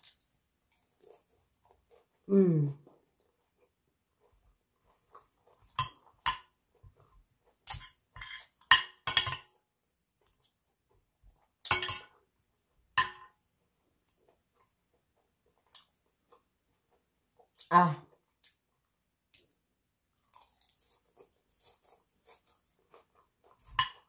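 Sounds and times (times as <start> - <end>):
cutlery clinking on ceramic plate: 5.6 - 6.6, 7.7 - 9.6, 11.6 - 12.2, 13.0 - 13.4, 23.6 - 24.0.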